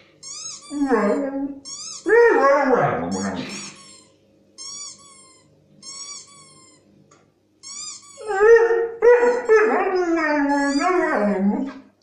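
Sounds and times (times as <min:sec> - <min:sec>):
squeaky toy squeaks from phone: 0:00.2 - 0:01.0, 0:01.6 - 0:02.1, 0:03.1 - 0:06.9, 0:07.6 - 0:08.4, 0:10.5 - 0:11.0
dog whining howl: 0:00.4 - 0:03.7, 0:08.1 - 0:11.8.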